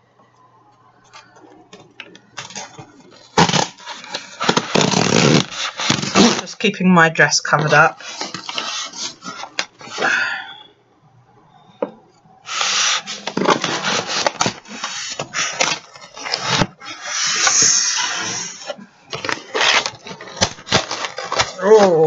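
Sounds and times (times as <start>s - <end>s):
cardboard flaps rubbing and scraping: 2.4s - 6.5s, 12.5s - 21.5s
cardboard tearing: 2.4s - 6.5s, 8.0s - 9.7s, 12.5s - 22.0s.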